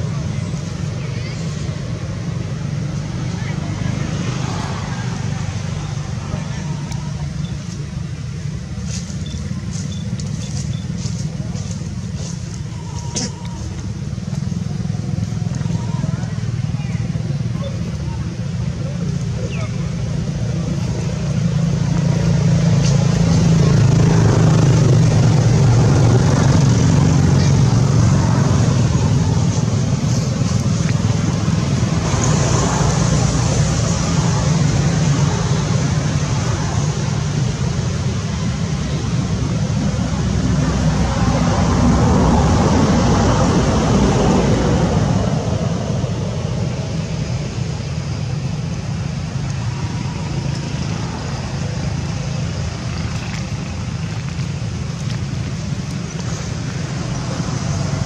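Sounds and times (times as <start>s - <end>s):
motor running with low rumble: 5.1s - 58.0s.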